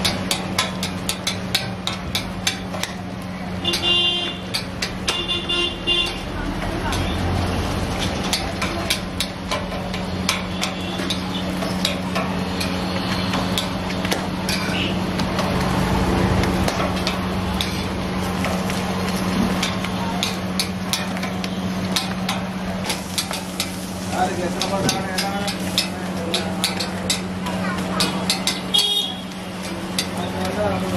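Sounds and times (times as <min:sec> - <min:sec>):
metal spatula clinking on griddle: 0:00.0 - 0:03.0, 0:08.0 - 0:13.8, 0:14.4 - 0:14.9, 0:19.5 - 0:30.6.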